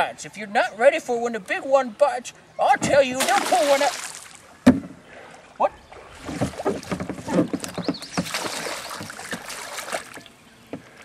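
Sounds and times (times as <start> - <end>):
kayak paddle splashing water: 3.1 - 11.0.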